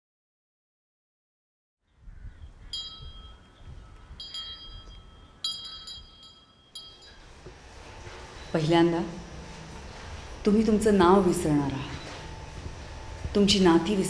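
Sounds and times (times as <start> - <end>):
small bells chiming: 2.8 - 8.7
low rumbling drone: 3.7 - 14.0.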